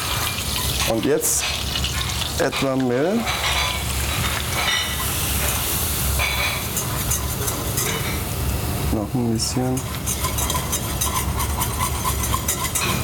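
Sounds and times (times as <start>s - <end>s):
roux sizzling in saucepan: 0.0s - 13.0s
wire whisk ticking against pan: 9.6s - 13.0s.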